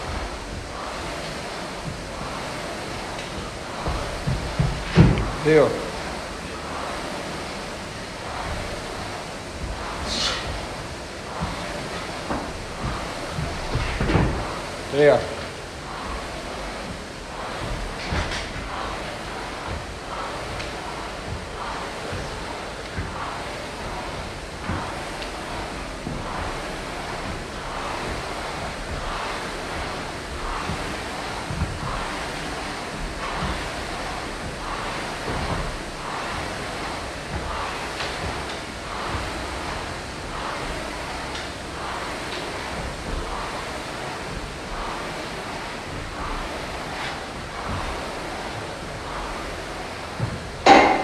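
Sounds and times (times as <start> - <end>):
thumps on rubber gym floor: 0.0 - 6.0, 50.2 - 51.0
steady rushing hiss: 0.0 - 51.0.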